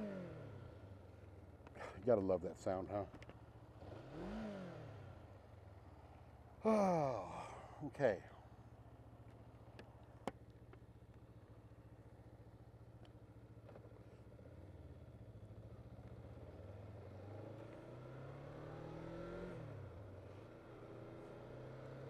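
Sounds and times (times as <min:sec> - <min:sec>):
motorcycle engine revving: 0:00.0 - 0:01.0, 0:03.6 - 0:05.6, 0:14.6 - 0:22.0.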